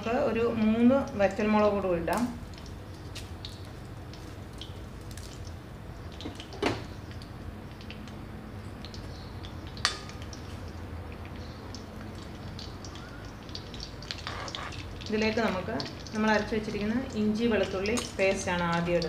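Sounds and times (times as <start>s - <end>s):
seeds frying in oil: 0.0s - 19.0s
popping seeds crackling: 2.1s - 8.2s, 8.8s - 16.2s.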